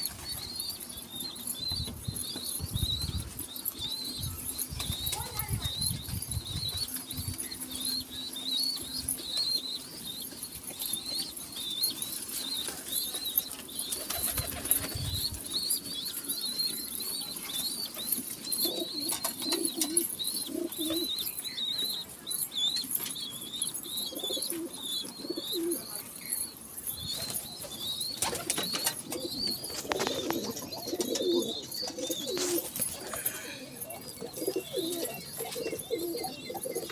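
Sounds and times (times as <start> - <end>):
pigeons cooing: 0.0 - 23.0, 23.8 - 36.9
high repeated chirping: 0.0 - 36.9
pigeons flapping wings: 13.9 - 15.3, 28.1 - 31.4.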